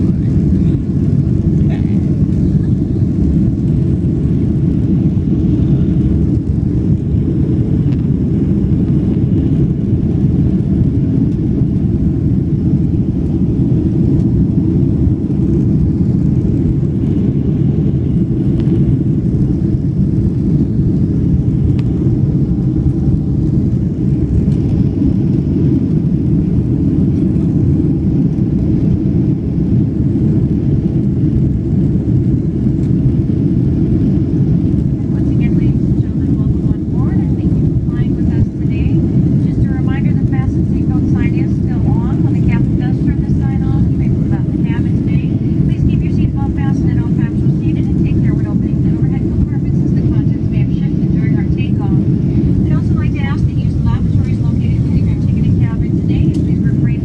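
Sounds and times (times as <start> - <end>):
jet engines rumbling in cabin: 0.0 - 57.0.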